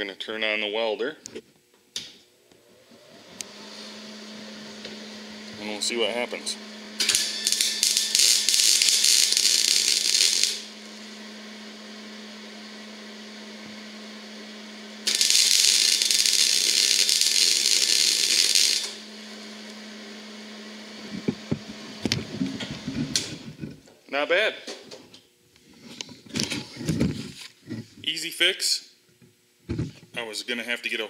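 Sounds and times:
welder arc crackling: 2.5s - 23.8s.

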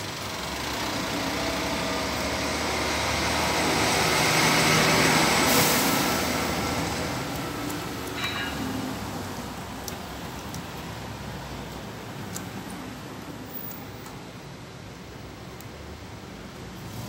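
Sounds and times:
vehicle engine passing: 0.4s - 7.3s.

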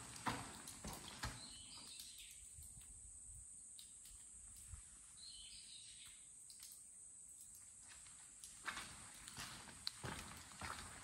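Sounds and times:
footsteps on the ground: 7.8s - 11.0s.

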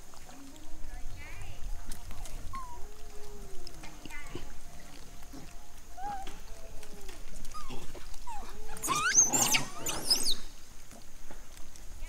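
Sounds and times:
monkeys soft calls: 2.3s - 10.6s
monkeys screaming: 2.4s - 3.0s, 3.6s - 10.5s.

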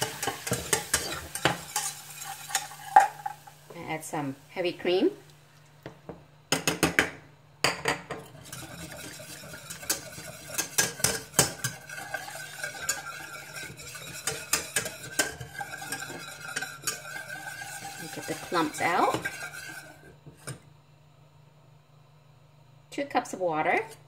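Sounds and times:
low sizzle from hot pan: 0.0s - 24.0s
wire whisk clinking against saucepan: 0.1s - 3.3s, 8.5s - 19.8s.

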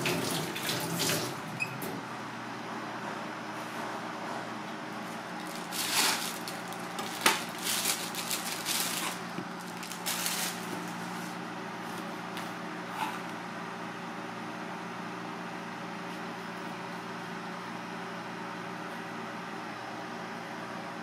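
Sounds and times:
steady low hum: 1.3s - 21.0s
plastic bag rustling: 5.0s - 11.4s.

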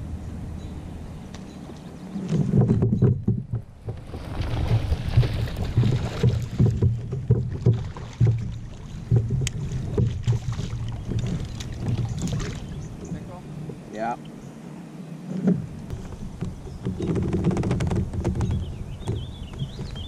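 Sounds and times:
wind rumble: 0.0s - 20.0s
water splashing: 2.1s - 14.4s
microphone handling thumps: 2.2s - 13.3s, 15.3s - 20.0s.

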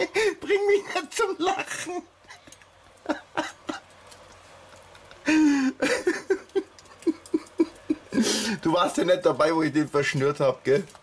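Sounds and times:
stifled laughter: 2.3s - 3.9s, 4.7s - 8.6s.

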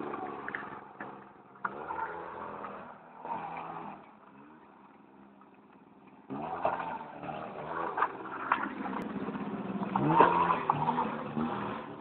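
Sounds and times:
quad bike engine revving: 0.0s - 4.0s, 6.3s - 12.0s.

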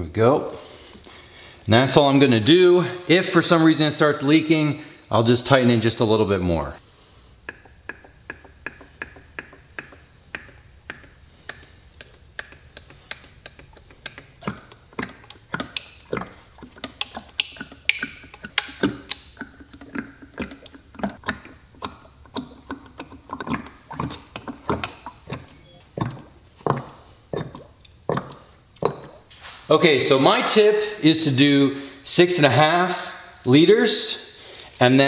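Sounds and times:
motor oil glugging from a jug: 7.4s - 29.3s.

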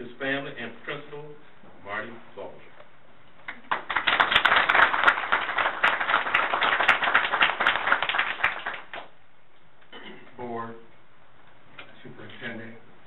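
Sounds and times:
audience applauding: 3.5s - 9.1s.

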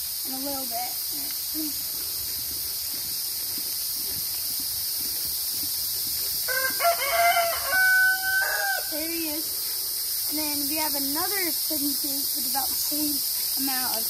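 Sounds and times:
steady high hiss: 0.0s - 14.0s
rooster crowing: 6.5s - 9.0s.

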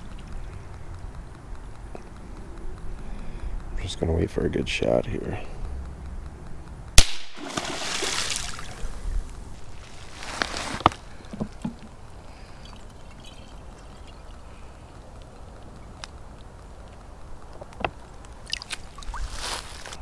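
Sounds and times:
handgun shot: 7.0s - 7.8s
water splashing: 7.2s - 9.2s, 18.4s - 19.4s
hand dipping into creek water: 7.4s - 9.0s.

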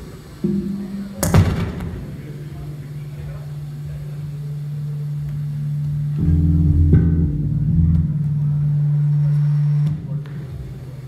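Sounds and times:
amplified guitar notes: 0.3s - 11.0s.

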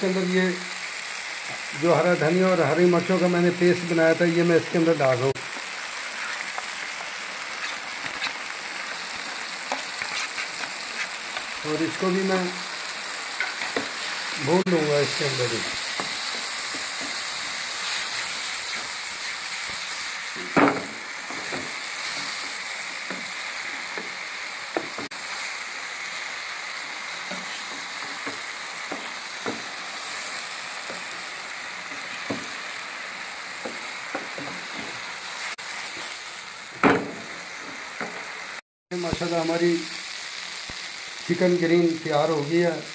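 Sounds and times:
chicken sizzling in a frying pan: 0.0s - 42.9s
wooden spatula scraping a pan: 6.0s - 6.7s, 9.7s - 11.5s.

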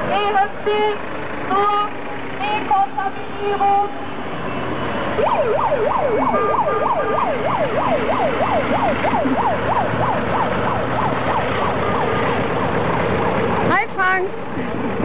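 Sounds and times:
low vehicle engine rumble: 0.0s - 15.0s
siren yelping: 5.1s - 12.2s.

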